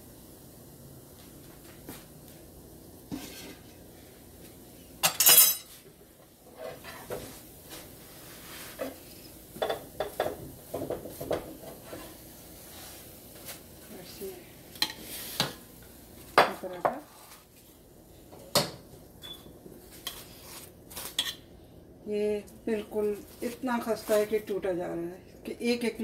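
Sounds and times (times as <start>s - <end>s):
dishes and utensils clattering: 5.0s - 5.8s.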